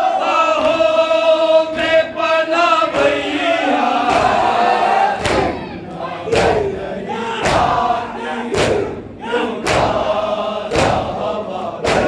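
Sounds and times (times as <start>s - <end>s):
men chanting a lament: 0.0s - 12.0s
chest-beating slaps: 4.0s - 4.6s, 5.2s - 6.8s, 7.4s - 7.9s, 8.5s - 12.0s.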